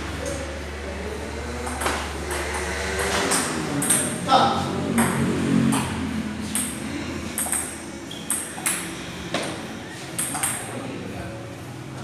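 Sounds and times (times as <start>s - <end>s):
table tennis ball pinging: 1.6s - 4.3s, 4.9s - 10.8s.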